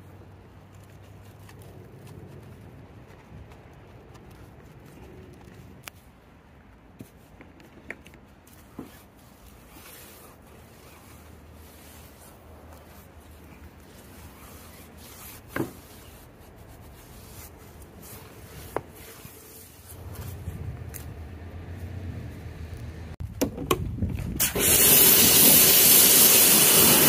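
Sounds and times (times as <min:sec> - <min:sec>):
cleaning tool scrubbing a car: 0:08.5 - 0:20.5, 0:24.5 - 0:27.0.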